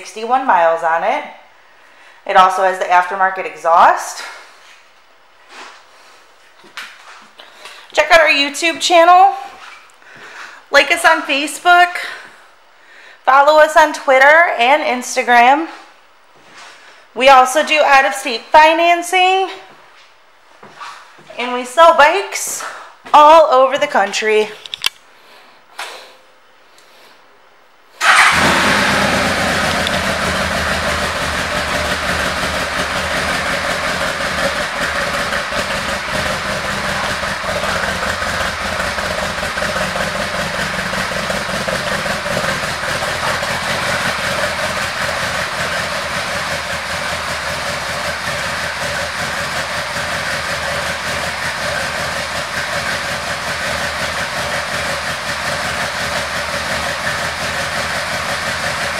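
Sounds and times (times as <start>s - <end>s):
motorcycle engine idling: 28.0s - 58.9s.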